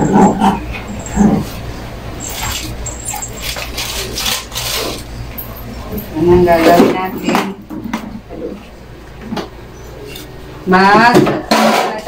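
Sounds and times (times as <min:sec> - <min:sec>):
plastic bag rustling: 0:02.3 - 0:05.1.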